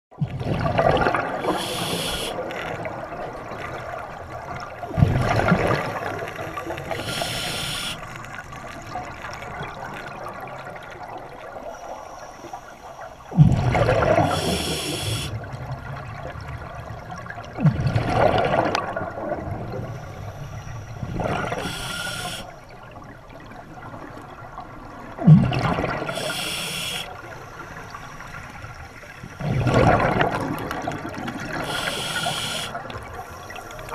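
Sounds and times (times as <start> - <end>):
exhaled bubbles rumbling: 0.2 - 11.7, 13.0 - 33.9
regulator inhalation hiss: 1.4 - 2.4, 5.7 - 8.2, 11.6 - 13.4, 14.2 - 15.3, 19.7 - 22.7, 26.1 - 29.5, 31.5 - 33.9.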